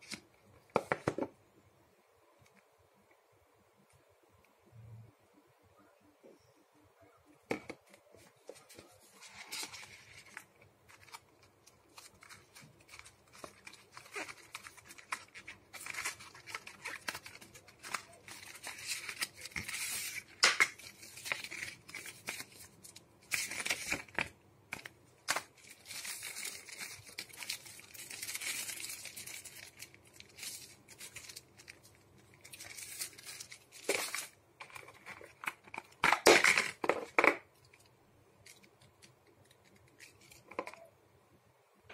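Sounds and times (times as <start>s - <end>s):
paper and plastic wrap rustling: 8.2s - 40.9s.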